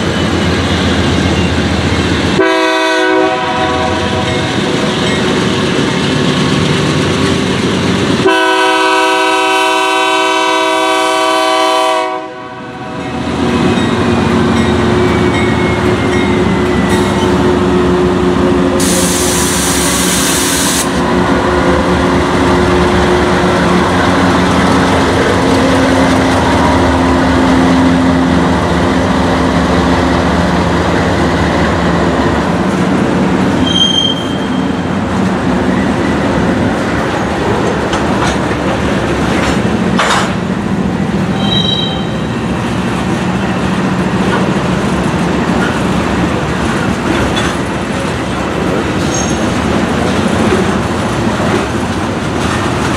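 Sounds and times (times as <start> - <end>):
diesel locomotive engine drone: 0.0 - 52.9
train wheel and rail noise: 0.0 - 52.9
high wheel squeals: 33.6 - 34.8, 41.3 - 42.3, 49.0 - 49.5.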